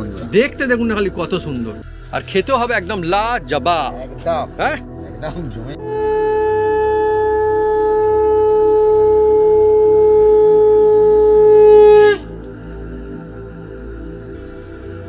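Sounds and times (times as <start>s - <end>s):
background music: 0.0s - 15.0s
long blown horn note: 5.7s - 13.2s.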